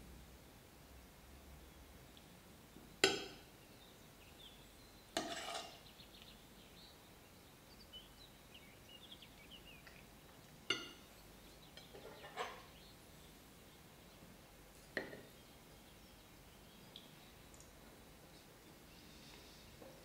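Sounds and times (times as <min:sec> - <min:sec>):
metal utensils clinking on kitchenware: 0:05.2 - 0:05.8, 0:11.8 - 0:12.7.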